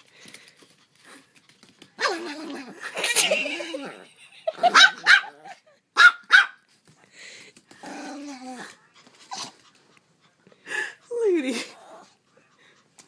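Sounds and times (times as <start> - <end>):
dog growling: 2.0 - 4.1, 7.7 - 9.6, 11.6 - 12.2
small dog yapping: 4.6 - 6.6.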